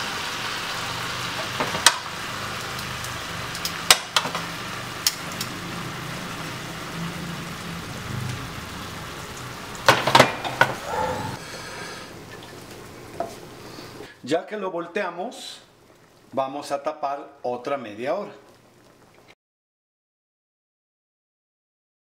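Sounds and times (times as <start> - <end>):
chicken sizzling in a skillet: 0.0 - 14.1.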